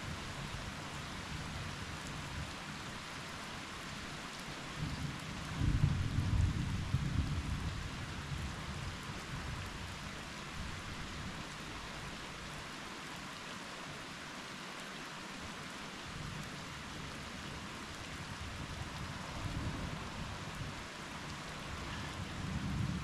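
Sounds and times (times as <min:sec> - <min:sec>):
steady rain: 0:00.0 - 0:23.0
low thunder rumble: 0:04.8 - 0:07.8.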